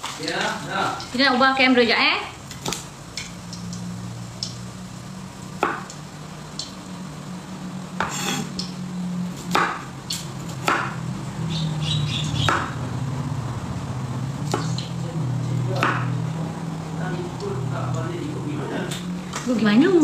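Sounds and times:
low steady hum: 0.0s - 20.0s
knife chopping on wooden board: 5.6s - 5.9s, 8.0s - 8.5s, 9.5s - 9.9s, 10.5s - 11.0s, 12.4s - 12.8s, 14.5s - 14.8s, 15.8s - 16.1s.

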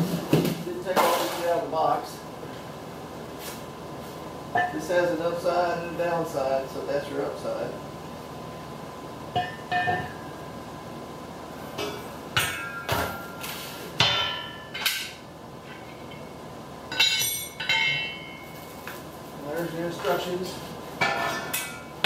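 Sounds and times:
steel parts knocking and clanking: 16.9s - 18.5s.

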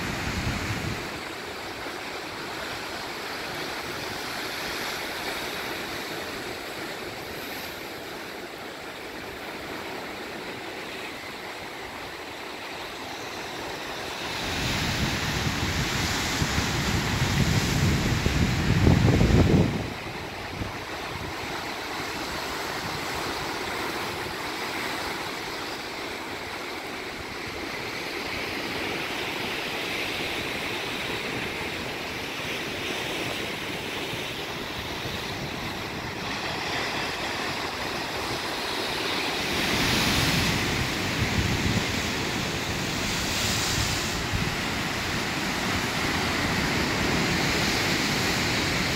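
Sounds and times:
wind rumble on microphone: 0.0s - 1.3s, 14.3s - 24.4s, 30.3s - 48.9s.

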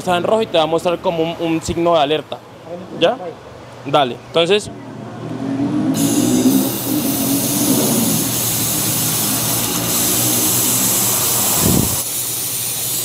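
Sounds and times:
laser welder hissing: 6.0s - 13.0s.

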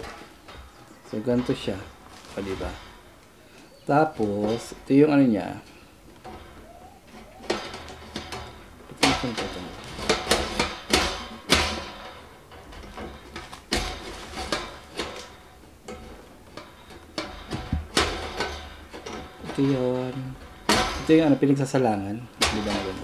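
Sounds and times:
metal grill grate clanking: 0.0s - 23.0s
sharp knocks: 5.7s - 21.6s, 22.2s - 23.0s.

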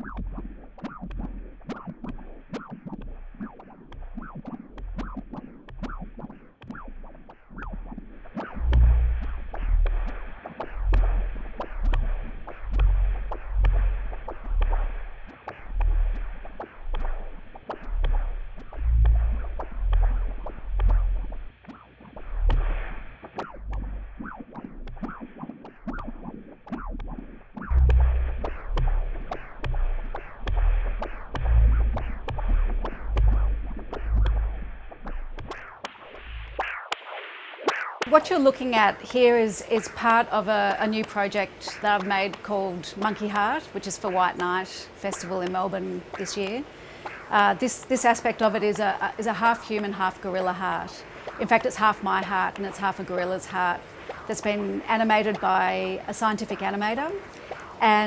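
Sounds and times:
deep rumble: 0.0s - 21.6s, 22.2s - 35.6s, 36.2s - 36.6s
deep low thuds: 0.0s - 36.6s
sharp clicks: 0.0s - 37.1s, 39.0s - 47.3s, 57.0s - 57.8s
scratchy swooping electronic sounds: 0.0s - 38.7s, 39.6s - 47.4s.

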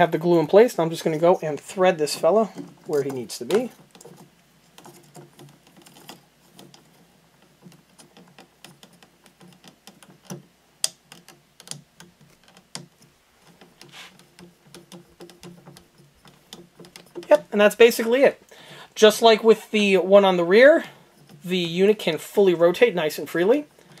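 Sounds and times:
fingers handling small part: 2.1s - 17.5s
hex key clicking on screw: 7.6s - 17.3s.

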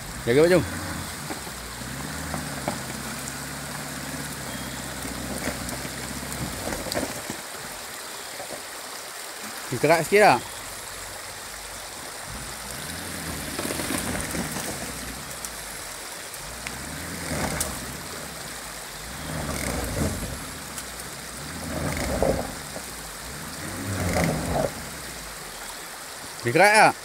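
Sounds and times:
vehicle engine revving hard: 0.0s - 7.2s, 12.2s - 25.4s.

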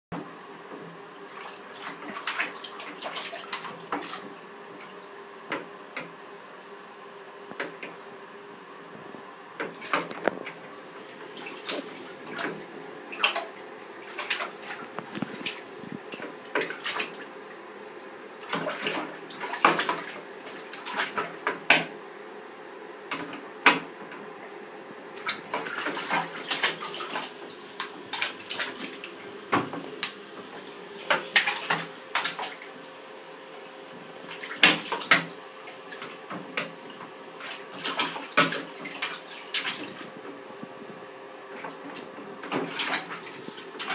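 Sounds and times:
baby splashing bath water: 1.3s - 5.0s, 9.6s - 17.5s, 18.4s - 21.9s, 25.2s - 32.8s, 34.0s - 36.3s, 37.3s - 40.2s, 41.5s - 43.9s.

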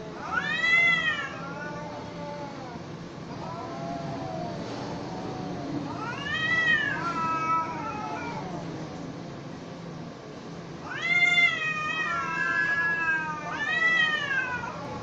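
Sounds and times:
cats yowling: 0.2s - 9.2s, 10.8s - 15.0s.

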